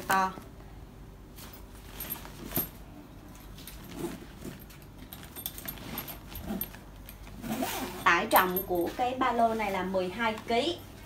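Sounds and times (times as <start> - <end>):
fabric rustling: 1.3 - 11.0
zipper pulls clinking: 1.4 - 9.5.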